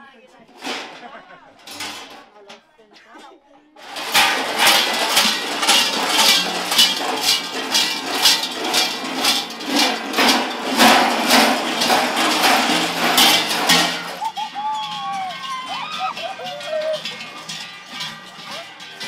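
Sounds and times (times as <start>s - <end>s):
large bells clanging: 3.8s - 19.0s.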